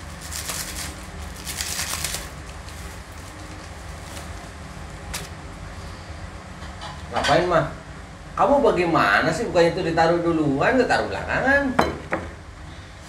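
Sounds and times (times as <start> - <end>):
rustling in hands: 0.0 - 5.4.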